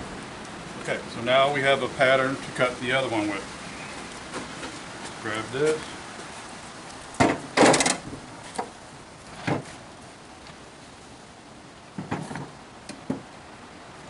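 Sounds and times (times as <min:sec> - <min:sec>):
wooden boards knocking and clattering: 0:07.2 - 0:08.8, 0:09.4 - 0:09.8, 0:12.0 - 0:13.3.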